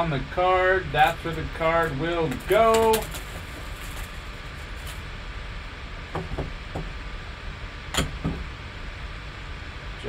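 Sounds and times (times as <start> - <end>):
steady background hiss: 0.0 - 10.0
plastic wrap crinkling: 2.4 - 5.0.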